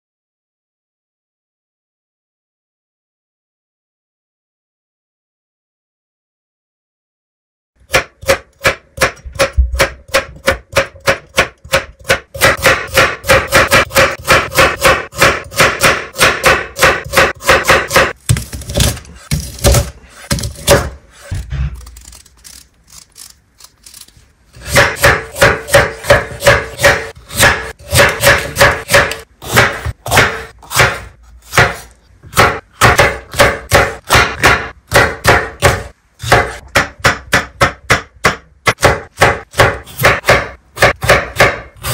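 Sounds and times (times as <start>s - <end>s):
knife chopping on cutting board: 7.9s - 21.4s, 24.6s - 41.9s.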